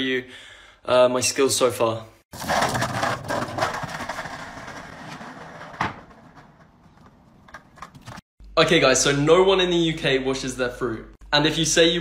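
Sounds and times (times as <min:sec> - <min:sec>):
skateboard wheels rolling on paving: 0:02.4 - 0:08.1.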